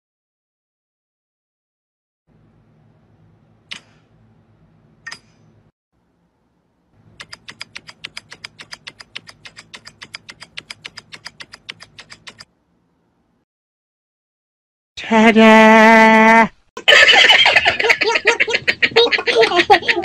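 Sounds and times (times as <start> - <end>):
sharp clicks: 7.2 - 12.5.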